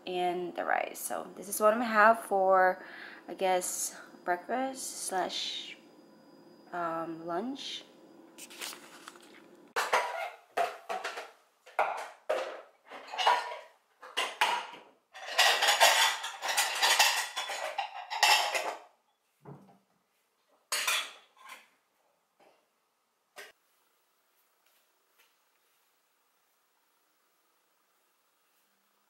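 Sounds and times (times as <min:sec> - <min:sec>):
dishes clattering in a metal sink: 0:09.8 - 0:18.9, 0:20.6 - 0:21.7.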